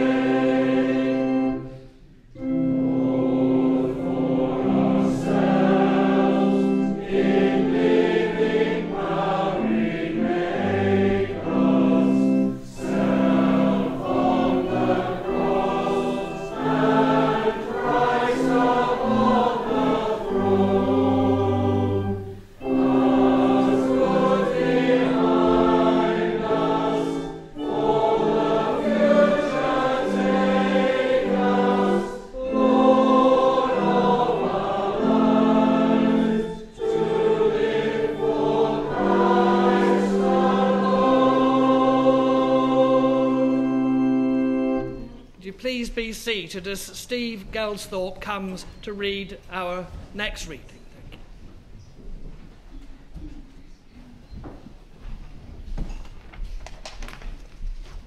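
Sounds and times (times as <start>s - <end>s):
congregation singing a hymn: 0.0s - 45.3s.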